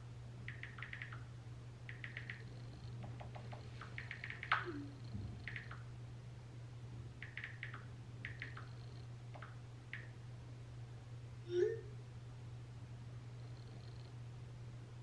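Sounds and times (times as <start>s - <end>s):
low hum: 0.0s - 15.0s
typing taps on smartphone: 0.5s - 1.3s, 1.9s - 4.7s, 5.4s - 5.8s, 7.2s - 10.2s.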